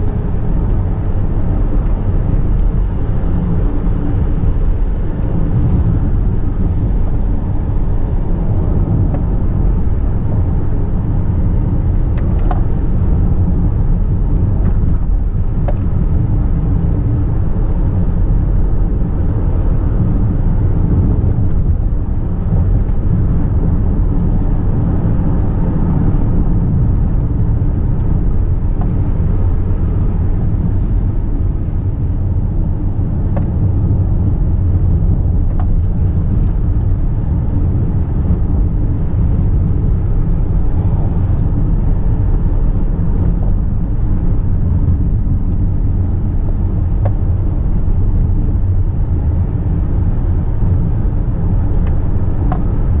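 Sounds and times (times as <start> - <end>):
car interior road rumble: 0.0 - 53.0.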